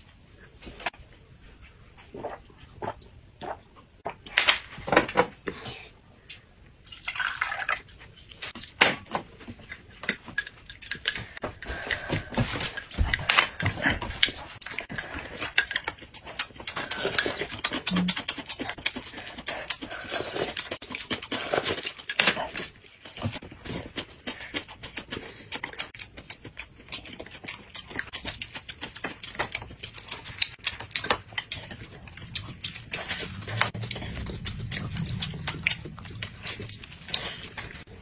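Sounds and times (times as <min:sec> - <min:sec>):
chewing: 0:09.5 - 0:38.0.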